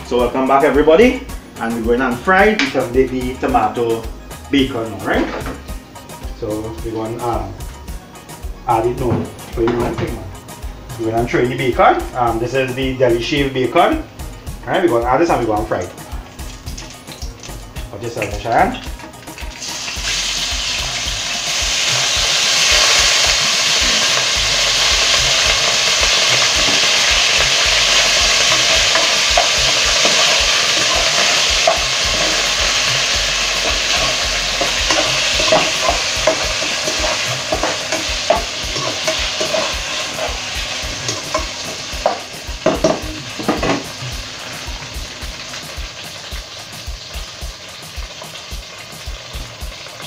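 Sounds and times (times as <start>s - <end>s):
bacon sizzling in oil: 13.3s - 50.0s
metal spoon knocking a pot: 33.6s - 40.3s, 41.1s - 43.8s.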